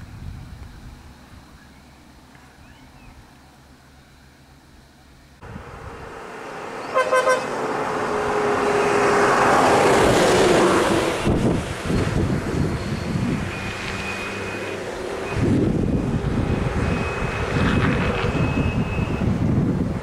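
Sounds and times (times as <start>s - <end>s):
diesel bus passing: 0.0s - 20.0s
horn toots: 6.8s - 7.7s.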